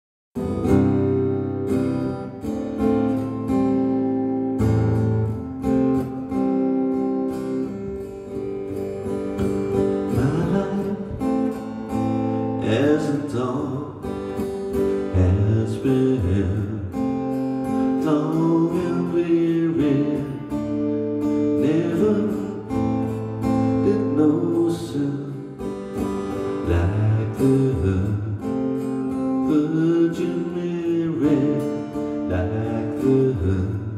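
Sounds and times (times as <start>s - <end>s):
acoustic guitar strummed: 0.4s - 33.9s
man singing: 10.0s - 33.9s.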